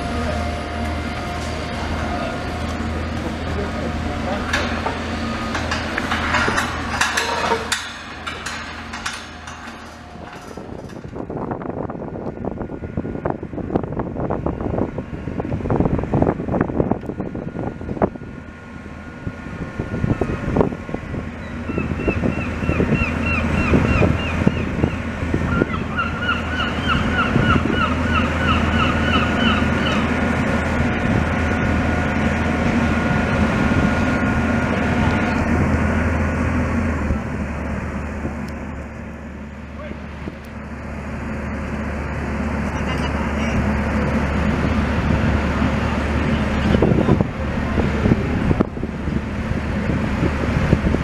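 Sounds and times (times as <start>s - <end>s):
diesel engine running under load: 0.0s - 51.0s
metal rails clanking together: 4.3s - 11.3s.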